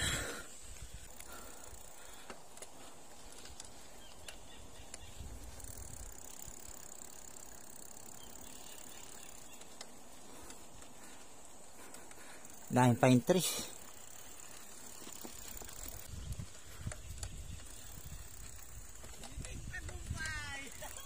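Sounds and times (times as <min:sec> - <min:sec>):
faint clicks: 0:01.0 - 0:12.7.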